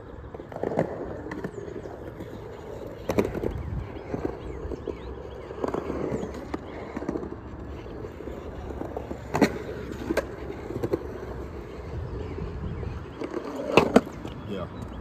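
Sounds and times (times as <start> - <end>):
skateboard rolling on concrete: 0.0 - 15.0.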